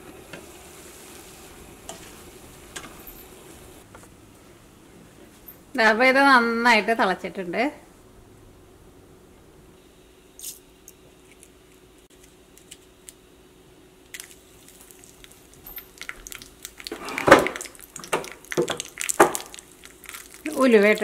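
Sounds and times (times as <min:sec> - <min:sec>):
loud sizzle in oil: 0:00.0 - 0:03.8, 0:14.2 - 0:21.0
seeds popping in hot oil: 0:14.1 - 0:21.0.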